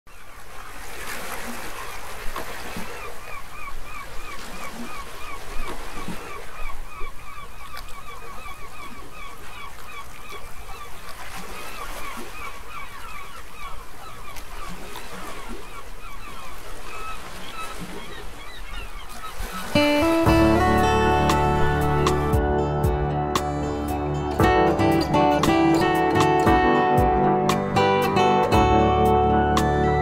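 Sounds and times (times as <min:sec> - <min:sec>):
birds calling rapid notes: 0:18.0 - 0:22.4.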